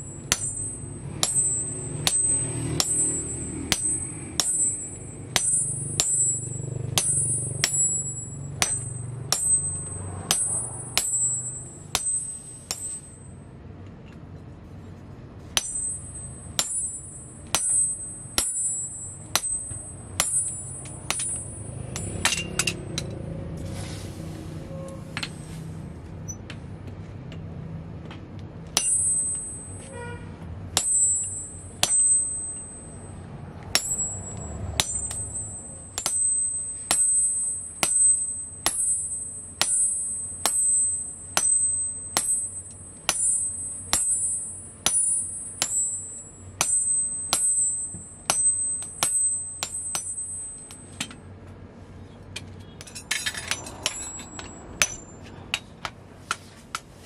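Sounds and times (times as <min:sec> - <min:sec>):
sledgehammer clanging on steel punch: 0:00.0 - 0:13.2, 0:15.6 - 0:23.2, 0:28.8 - 0:30.2, 0:30.8 - 0:32.8, 0:33.6 - 0:51.3, 0:52.6 - 0:56.0.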